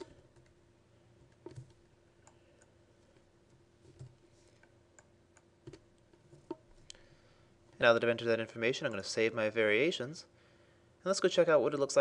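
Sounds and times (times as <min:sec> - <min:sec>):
computer keyboard keystrokes: 0:01.4 - 0:01.8.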